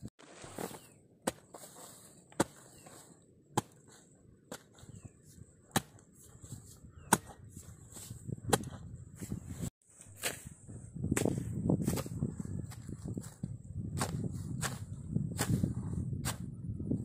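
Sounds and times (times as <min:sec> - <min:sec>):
hoe striking hard soil: 0:00.2 - 0:05.0, 0:05.7 - 0:06.3, 0:07.0 - 0:08.8, 0:10.1 - 0:10.5, 0:14.0 - 0:16.5
hoe scraping soil: 0:00.2 - 0:08.2.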